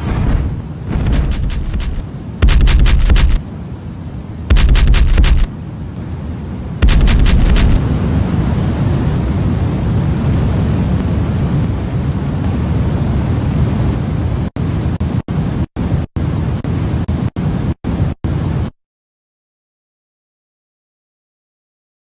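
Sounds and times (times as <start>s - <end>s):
industrial noise music: 1.1s - 3.4s, 4.5s - 5.5s.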